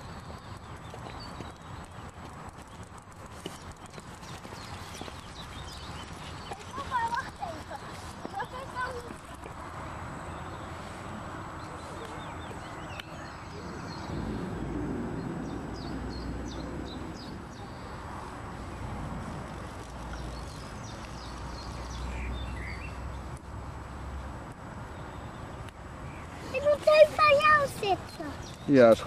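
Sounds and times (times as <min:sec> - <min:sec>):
small birds chirping: 0:00.0 - 0:29.0
low rumble: 0:13.4 - 0:17.6.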